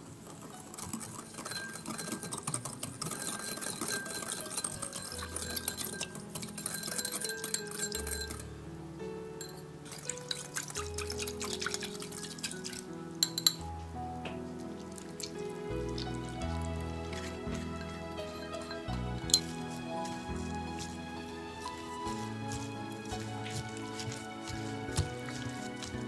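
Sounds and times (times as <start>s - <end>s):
liquid sloshing: 0.0s - 8.4s, 9.4s - 13.6s, 14.5s - 26.0s
soft background music: 0.0s - 26.0s
whisk clinking against glass bowl: 0.8s - 8.4s, 9.4s - 13.6s, 17.2s - 20.9s, 21.6s - 26.0s.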